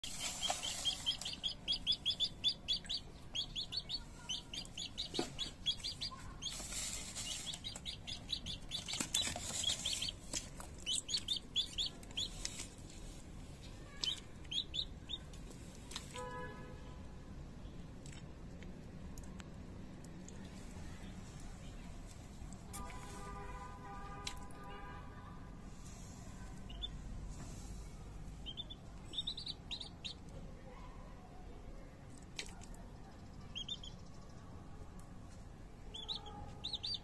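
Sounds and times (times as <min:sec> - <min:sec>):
chick peeping: 0:00.0 - 0:13.0, 0:13.6 - 0:16.1, 0:26.3 - 0:30.4, 0:32.4 - 0:34.3, 0:35.8 - 0:37.0.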